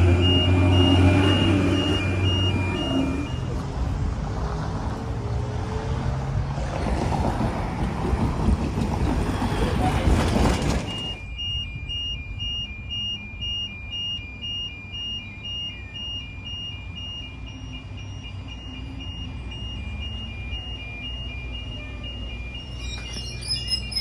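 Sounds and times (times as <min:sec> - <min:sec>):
level crossing two-tone alarm: 0:00.0 - 0:03.5, 0:10.5 - 0:24.0.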